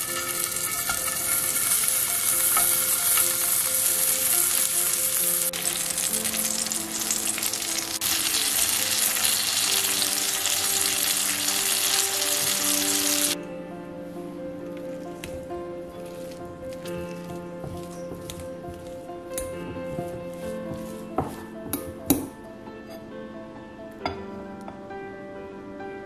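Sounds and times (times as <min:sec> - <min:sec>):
meat sizzling in a frying pan: 0:00.0 - 0:13.4
soft background music: 0:00.0 - 0:26.0.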